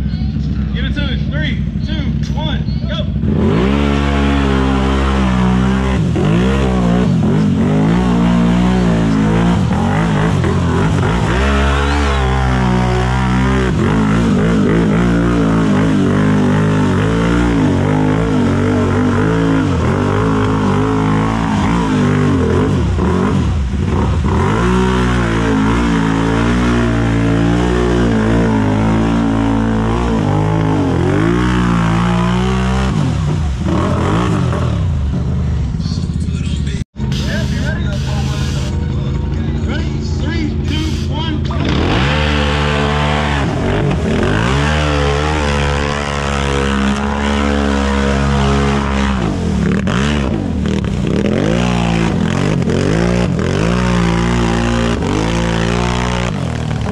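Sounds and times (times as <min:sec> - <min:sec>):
off-road engine revving hard: 0:00.8 - 0:35.4, 0:39.7 - 0:56.9.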